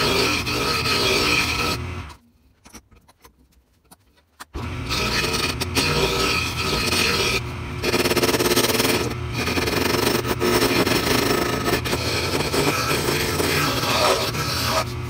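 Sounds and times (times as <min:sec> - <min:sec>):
turning tool scraping wood: 0:00.0 - 0:02.2, 0:03.4 - 0:15.0
wood lathe humming: 0:00.0 - 0:02.2, 0:04.6 - 0:15.0.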